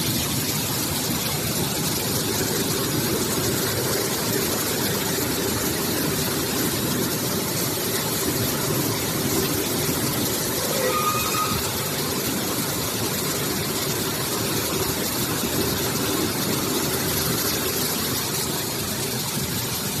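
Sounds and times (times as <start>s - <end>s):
production line machinery running: 0.0s - 20.0s.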